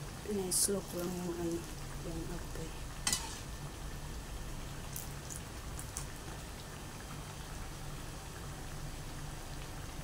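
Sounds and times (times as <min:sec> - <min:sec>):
fritters sizzling in hot oil: 0:00.0 - 0:10.0
oil crackles: 0:04.9 - 0:06.6.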